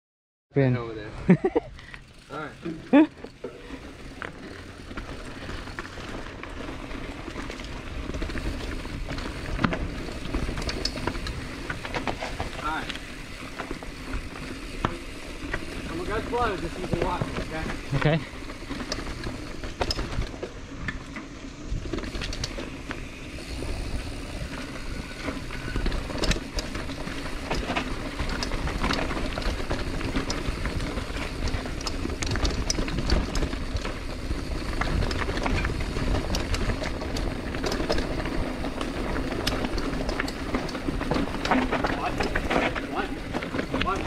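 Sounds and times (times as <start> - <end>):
bike clicking and rattling: 0.8 - 44.0
bike tyres rumbling on dirt: 1.8 - 44.0.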